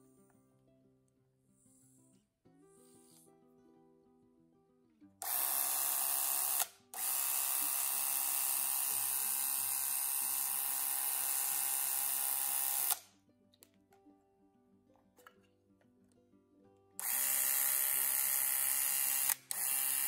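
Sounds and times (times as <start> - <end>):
movie camera motor running: 5.2 - 13.0, 17.0 - 20.0.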